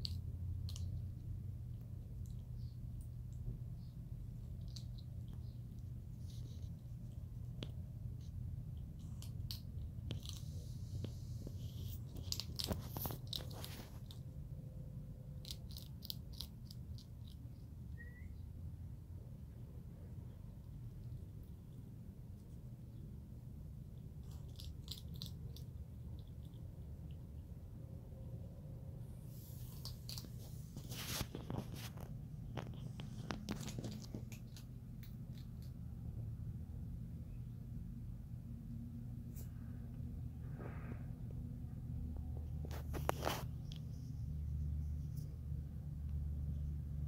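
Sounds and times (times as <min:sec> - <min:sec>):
skunk crunching food: 0:00.0 - 0:18.2, 0:18.9 - 0:37.1, 0:41.8 - 0:47.0
low background hum: 0:00.0 - 0:47.0
animal crunching dry food: 0:08.8 - 0:14.4, 0:15.3 - 0:17.6, 0:24.0 - 0:27.2, 0:29.5 - 0:35.8.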